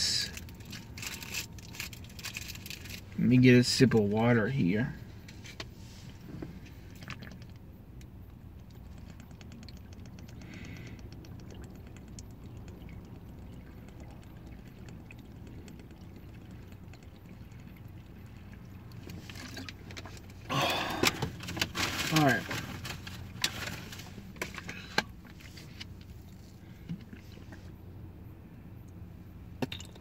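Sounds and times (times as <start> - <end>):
low rumble in car cabin: 0.0 - 30.0
plastic bottle crinkling: 0.3 - 3.1
sipping and swallowing: 6.8 - 7.7, 8.6 - 21.3.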